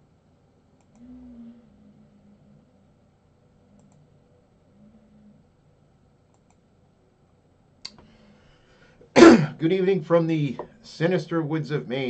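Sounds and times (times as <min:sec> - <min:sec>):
computer mouse clicks: 0:00.8 - 0:01.1, 0:03.7 - 0:04.2, 0:06.3 - 0:06.6.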